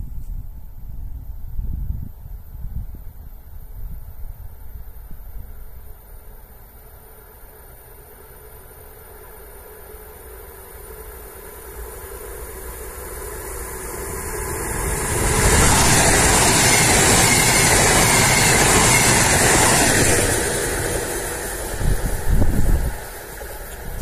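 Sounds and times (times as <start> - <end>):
wheels on rails: 6.7 - 24.0
rushing air: 11.5 - 24.0.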